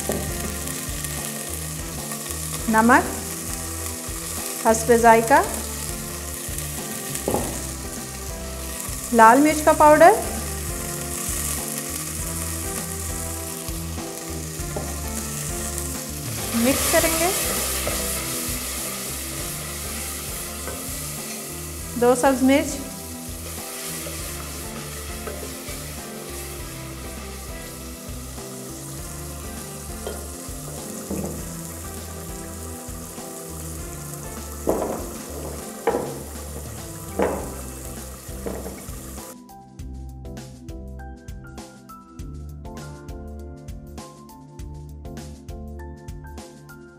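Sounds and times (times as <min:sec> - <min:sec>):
food sizzling in oil: 0:00.0 - 0:39.4
soft background music: 0:00.0 - 0:46.9.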